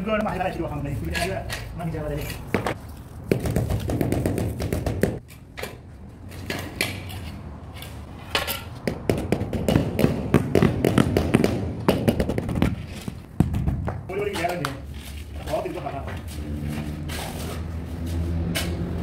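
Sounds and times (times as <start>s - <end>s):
trowel scraping wet mortar: 0.9s - 2.8s.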